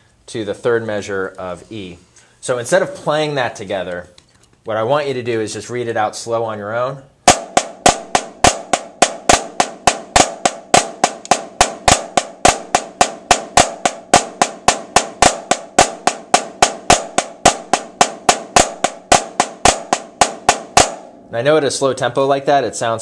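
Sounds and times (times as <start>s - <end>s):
snare drum strokes: 7.3s - 21.3s.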